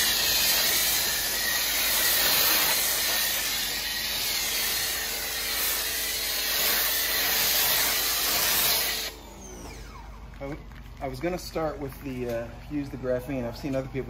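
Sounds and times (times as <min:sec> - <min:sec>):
pressure washer spraying foam: 0:00.0 - 0:10.2.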